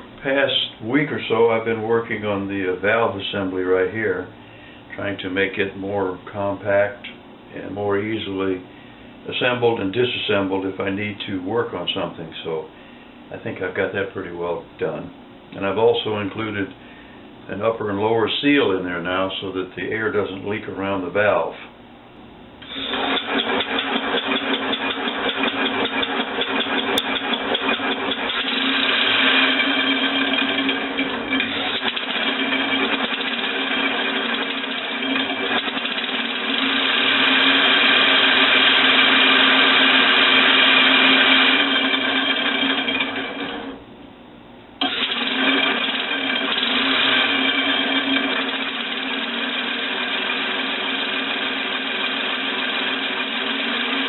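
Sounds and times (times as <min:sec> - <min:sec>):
air engine mechanical clatter: 0:22.9 - 0:43.2.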